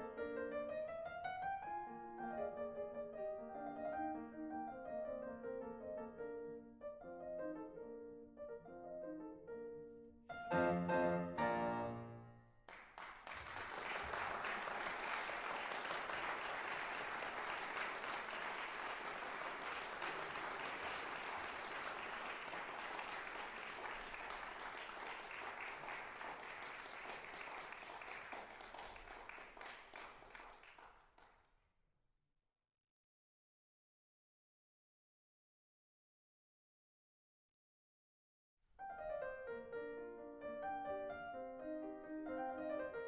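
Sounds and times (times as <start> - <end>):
piano piece: 0.0 - 12.6, 38.8 - 43.0
audience applause: 12.7 - 31.3.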